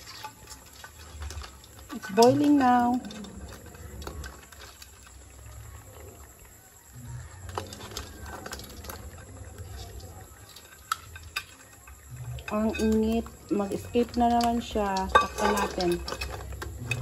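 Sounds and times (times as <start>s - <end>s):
water boiling under lid: 0.0s - 17.0s
crabs knocking against lid: 7.2s - 17.0s.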